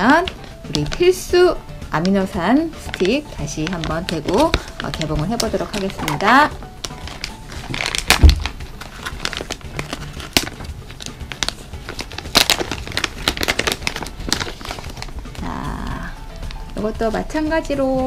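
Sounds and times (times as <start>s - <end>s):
plastic pouch crinkling: 0.0s - 1.3s, 2.0s - 15.4s.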